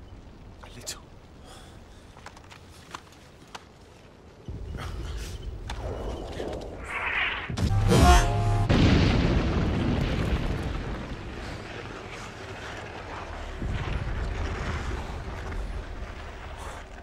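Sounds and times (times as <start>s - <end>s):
artillery shells exploding: 8.6s - 15.9s.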